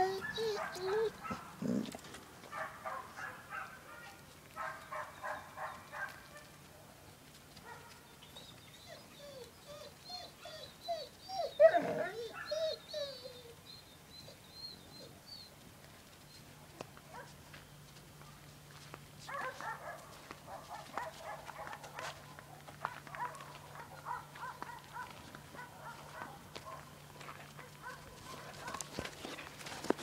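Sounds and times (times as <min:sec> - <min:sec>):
dogs yelping and barking: 0:00.0 - 0:03.8, 0:04.6 - 0:06.5, 0:08.4 - 0:15.5, 0:22.8 - 0:26.9, 0:27.6 - 0:30.0.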